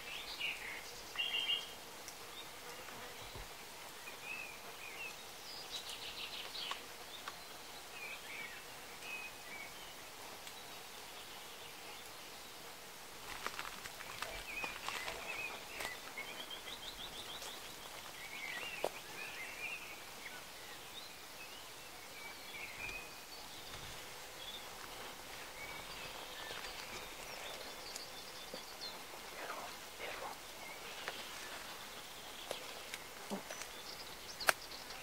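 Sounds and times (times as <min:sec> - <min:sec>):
small birds chirping: 0:00.0 - 0:35.0
footsteps on stony ground: 0:13.2 - 0:19.1, 0:23.7 - 0:28.6.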